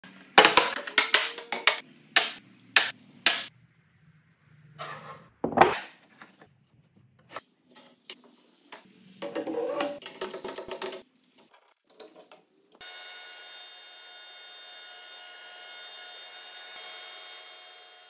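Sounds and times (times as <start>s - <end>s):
wooden boards knocking: 0.4s - 2.4s.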